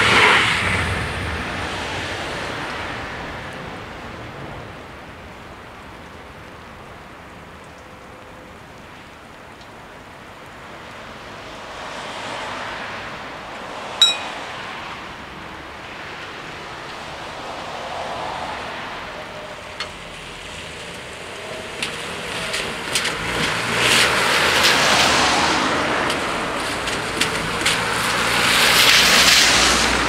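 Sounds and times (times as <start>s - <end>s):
rain hissing: 0.0s - 30.0s
wet road ambience: 0.0s - 30.0s
sharp metallic clink: 14.0s - 14.4s.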